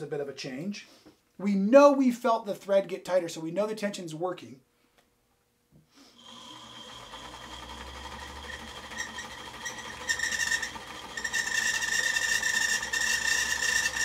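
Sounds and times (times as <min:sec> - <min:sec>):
sewing machine stitching fabric: 0:06.3 - 0:11.1.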